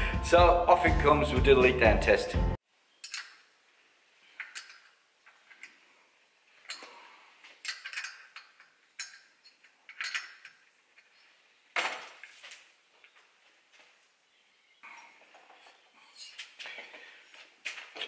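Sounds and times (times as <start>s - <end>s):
metal tools clinking: 3.0s - 3.4s, 4.4s - 5.8s, 6.6s - 12.4s.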